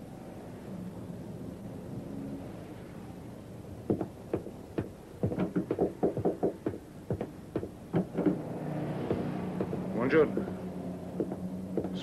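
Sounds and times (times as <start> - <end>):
knocking on a wooden door: 3.9 - 8.4, 9.1 - 10.5, 11.2 - 12.0.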